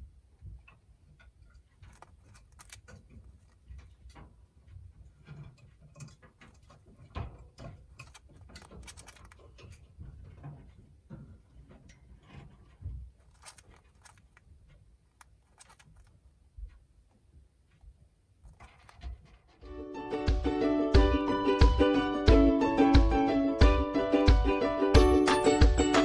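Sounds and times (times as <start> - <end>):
bird grinding its beak: 1.8 - 3.6, 8.0 - 9.6, 15.2 - 16.1.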